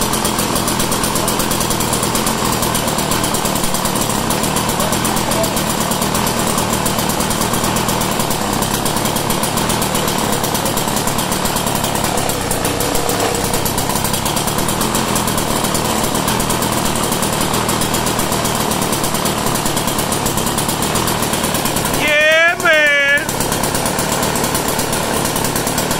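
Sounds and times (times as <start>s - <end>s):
small gasoline engine running: 0.0s - 25.9s.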